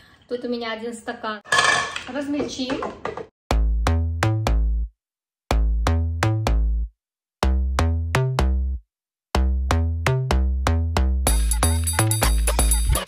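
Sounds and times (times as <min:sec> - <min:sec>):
electronic beat with deep bass: 0:09.4 - 0:13.0.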